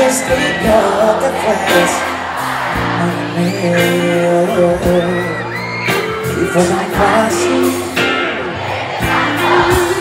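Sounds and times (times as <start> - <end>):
man singing: 0.0 - 2.2, 2.8 - 8.2
live band playing pop ballad: 0.0 - 10.0.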